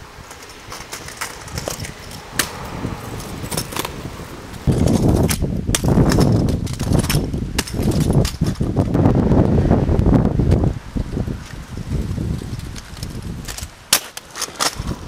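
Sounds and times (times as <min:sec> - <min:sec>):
scooter wheels rolling on asphalt: 0:00.0 - 0:15.0
metallic clicks and rattles: 0:04.7 - 0:08.7.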